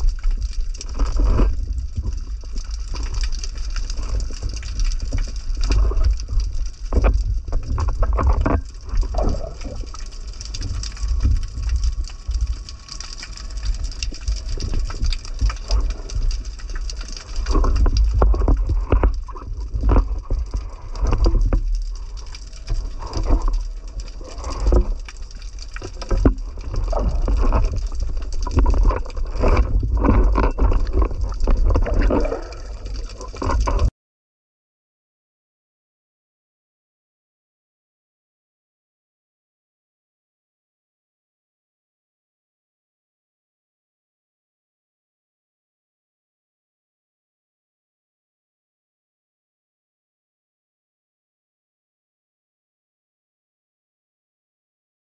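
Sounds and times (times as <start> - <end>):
low rumble of moving water: 0.0 - 33.9
muffled bubbling: 0.0 - 33.9.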